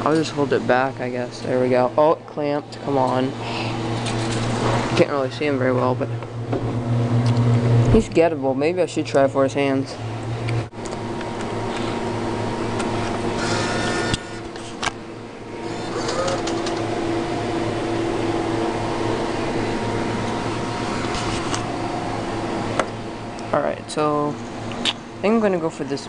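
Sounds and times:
claw machine motors whirring: 12.7 - 23.0.

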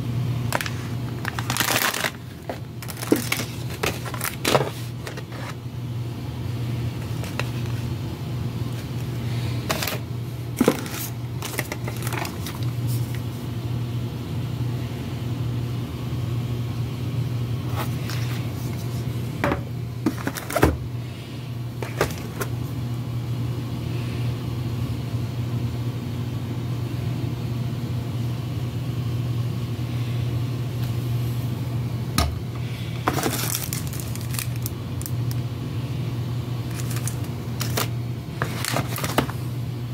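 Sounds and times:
low machinery hum: 0.0 - 39.9
plastic packaging crinkling: 0.5 - 5.6, 7.0 - 7.9, 8.7 - 13.3, 20.1 - 20.6, 21.8 - 22.5, 33.0 - 35.4, 36.6 - 39.4.

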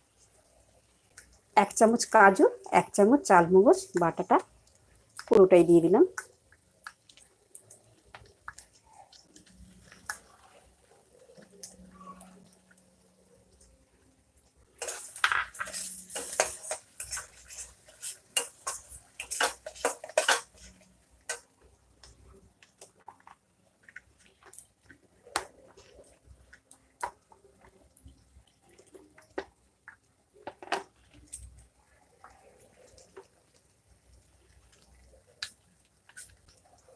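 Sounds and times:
metal spatula scraping a pan: 14.8 - 21.5.

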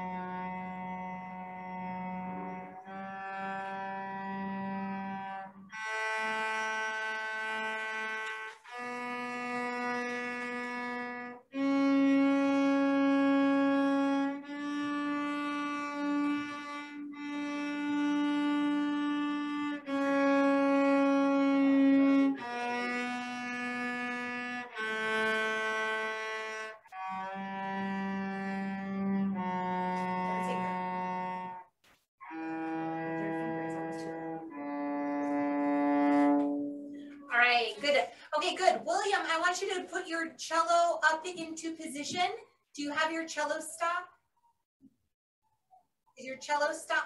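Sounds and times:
cello playing a scale: 0.0 - 37.3.

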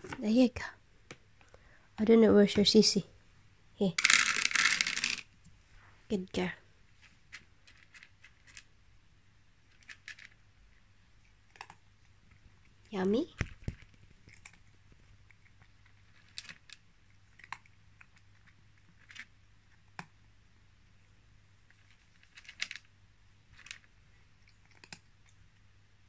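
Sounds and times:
cat crunching dry kibble: 7.0 - 8.8, 9.6 - 10.6, 11.2 - 20.0, 21.6 - 25.6.

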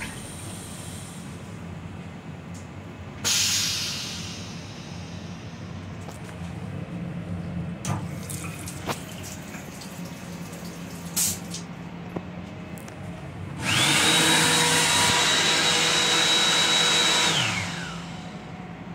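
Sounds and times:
hand dryer blowing: 13.6 - 18.3.

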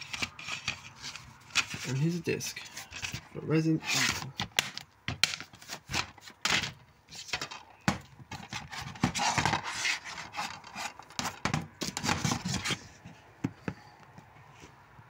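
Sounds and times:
plastic case handled and clicking: 4.1 - 9.6, 10.4 - 12.8.

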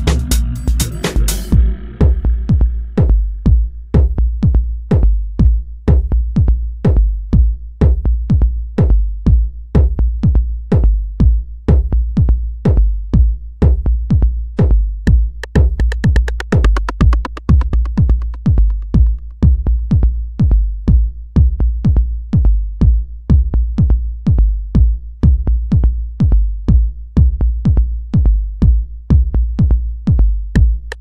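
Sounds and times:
fast repeating synth pattern: 0.0 - 3.2, 15.4 - 19.8
electronic dance music: 0.0 - 3.7, 15.3 - 19.5
deep bass: 0.0 - 31.0
drum machine kick: 0.0 - 31.0.

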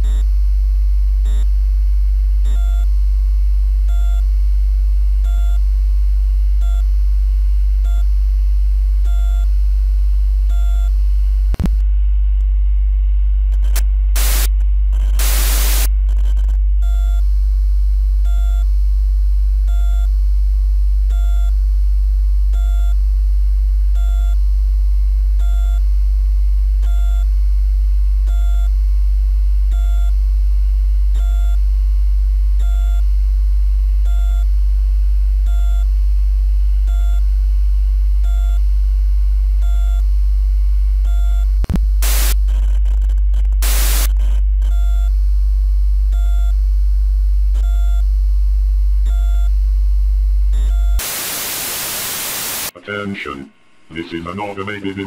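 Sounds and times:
low electrical hum: 0.0 - 55.0
static hiss bursts: 14.2 - 14.6, 15.2 - 15.9, 41.7 - 42.4, 43.6 - 44.2, 51.0 - 52.8.

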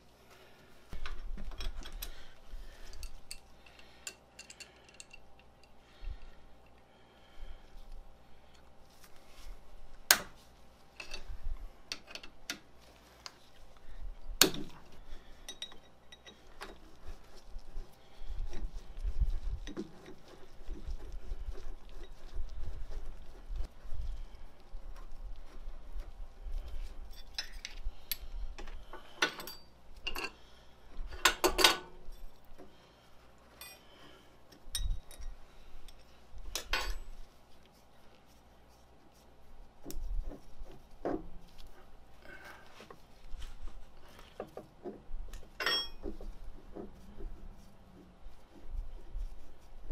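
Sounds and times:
metal parts clinking and scraping: 2.8 - 5.8, 11.0 - 12.6.

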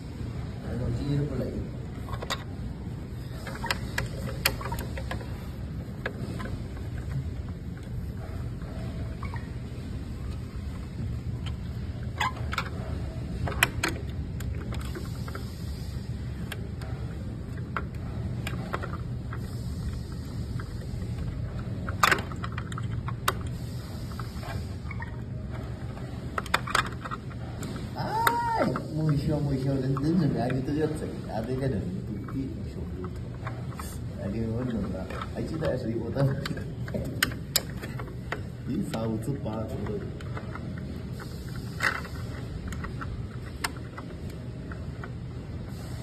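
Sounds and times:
allen key clicking on screws: 21.2 - 23.6.

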